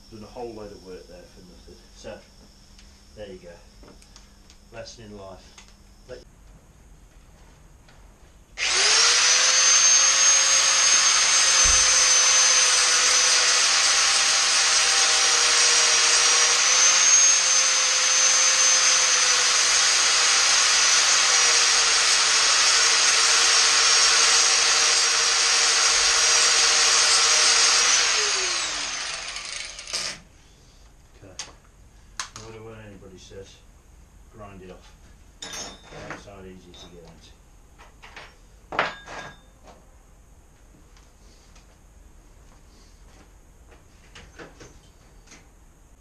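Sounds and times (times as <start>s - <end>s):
grinder cutting metal chain: 8.6s - 30.2s.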